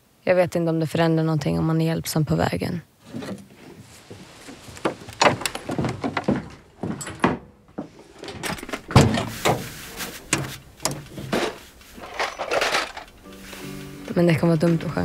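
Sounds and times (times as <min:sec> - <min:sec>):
objects knocking and clunking: 0:03.0 - 0:15.0.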